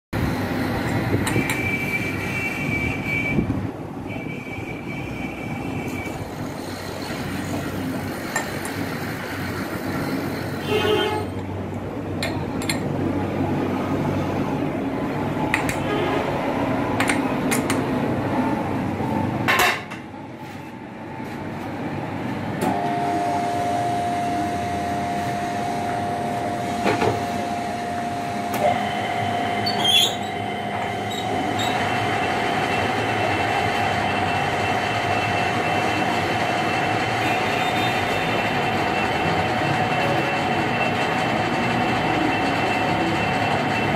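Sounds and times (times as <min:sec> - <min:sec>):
high steady whine: 0:00.2 - 0:43.9
low steady whine: 0:22.0 - 0:36.7.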